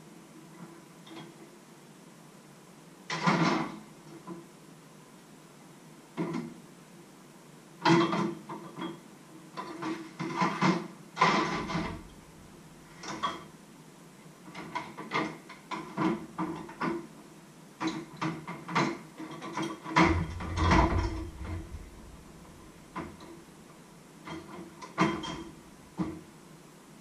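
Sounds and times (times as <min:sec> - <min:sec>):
pots and cutlery clattering in sink: 0:07.9 - 0:09.0, 0:09.6 - 0:12.1, 0:17.8 - 0:21.9, 0:24.3 - 0:25.5.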